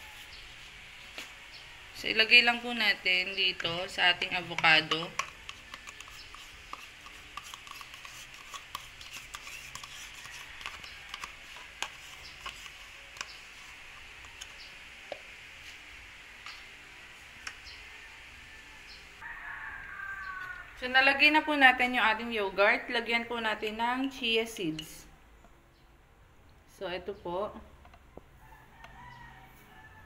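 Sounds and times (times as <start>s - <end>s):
spoon scraping plastic cup: 3.5s - 14.7s.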